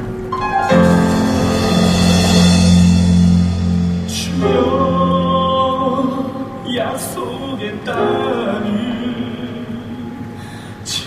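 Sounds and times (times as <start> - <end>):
stage band playing: 0.3 - 5.6
cymbal crash: 0.3 - 6.2
drums and cymbals: 0.4 - 5.6.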